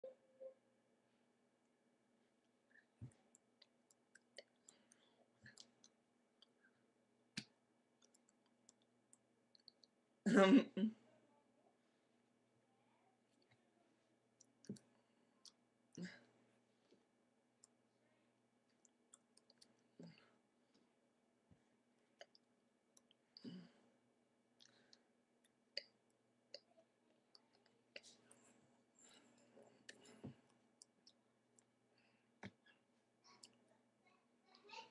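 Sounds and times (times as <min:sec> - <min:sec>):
small mouth noises: 0:02.7 - 0:06.6, 0:22.2 - 0:23.7
faint clicks and taps: 0:14.4 - 0:15.6.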